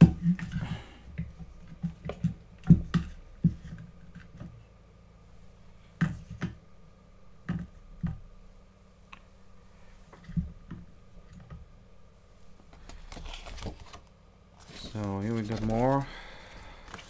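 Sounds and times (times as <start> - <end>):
low steady hum: 0.0 - 17.0
cardboard rustle: 12.8 - 16.1.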